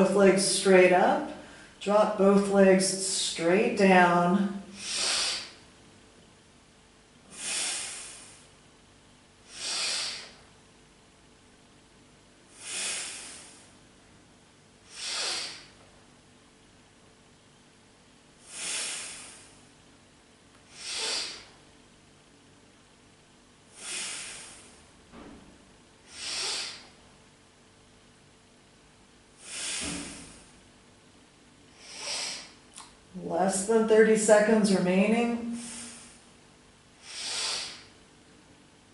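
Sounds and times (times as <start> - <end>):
woman breathing forcefully: 1.4 - 1.8, 4.6 - 5.7, 7.2 - 8.6, 9.4 - 10.5, 12.5 - 14.0, 14.8 - 15.9, 18.4 - 19.7, 20.6 - 21.6, 23.7 - 25.0, 26.0 - 27.0, 29.4 - 30.6, 31.7 - 32.6, 35.4 - 36.4, 37.0 - 38.0.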